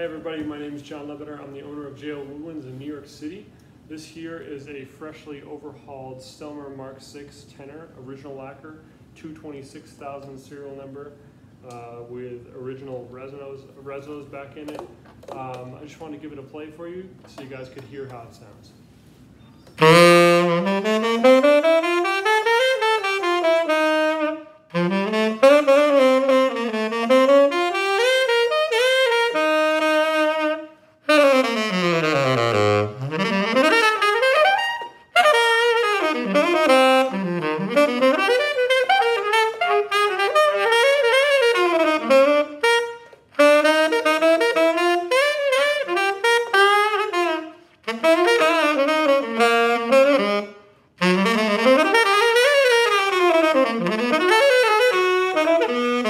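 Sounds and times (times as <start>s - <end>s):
tenor saxophone playing solo: 19.8s - 56.0s.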